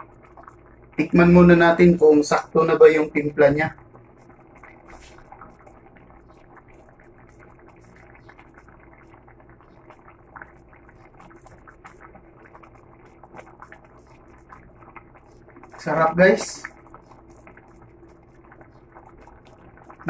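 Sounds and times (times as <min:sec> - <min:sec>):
steady low hum: 0:00.0 - 0:20.0
stew bubbling and popping: 0:00.0 - 0:20.0
wooden spoon stirring broth: 0:03.8 - 0:20.0.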